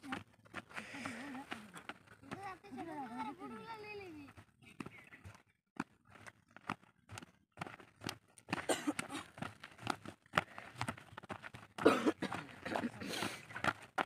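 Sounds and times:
footsteps scuffing on dirt: 4.3s - 14.0s.

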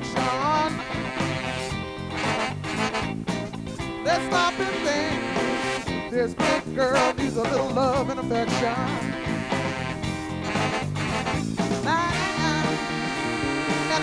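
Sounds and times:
woman singing: 0.0s - 1.0s, 4.1s - 5.5s, 6.1s - 9.3s, 11.9s - 14.0s
bass line: 0.0s - 14.0s
electric guitar: 0.0s - 14.0s.

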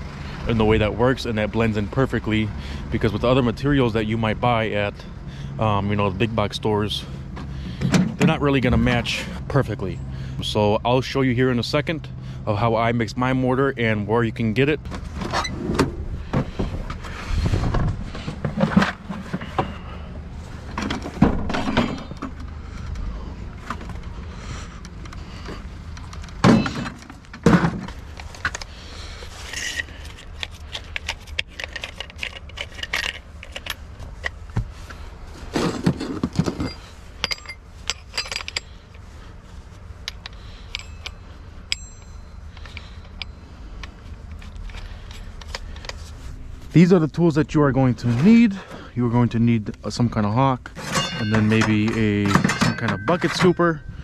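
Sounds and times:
tools knocking and clattering: 20.7s - 22.5s, 26.0s - 28.7s, 29.6s - 34.7s, 35.6s - 38.8s, 50.7s - 53.8s.

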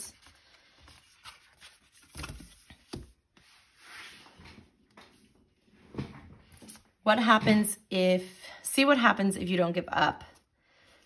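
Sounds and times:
paper rustling: 0.0s - 5.2s.

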